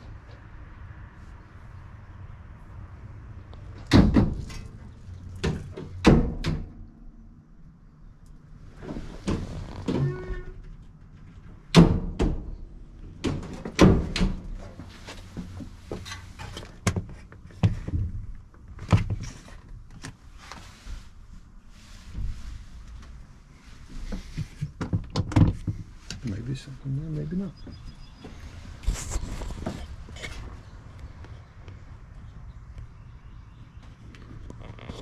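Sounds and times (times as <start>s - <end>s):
knocks and thumps in truck body: 3.8s - 4.7s, 11.7s - 12.6s, 13.2s - 14.7s.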